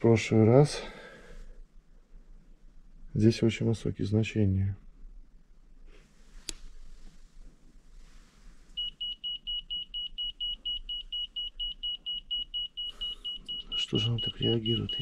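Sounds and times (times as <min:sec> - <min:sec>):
rapid high-pitched alarm beeps: 0:08.8 - 0:15.0.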